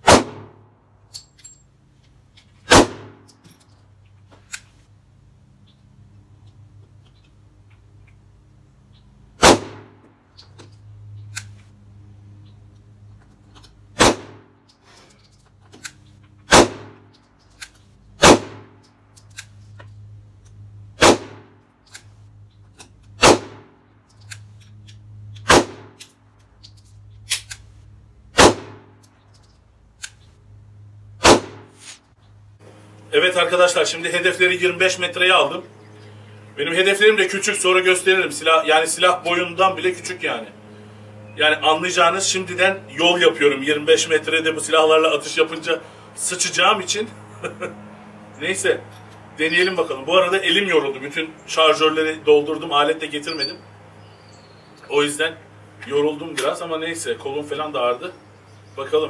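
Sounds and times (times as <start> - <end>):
pistol shots: 0.0 - 0.6, 2.7 - 3.3, 9.4 - 10.0, 14.0 - 14.5, 16.5 - 17.1, 18.2 - 18.8, 21.0 - 21.5, 23.2 - 23.8, 25.4 - 26.0, 28.3 - 29.0, 31.2 - 31.8.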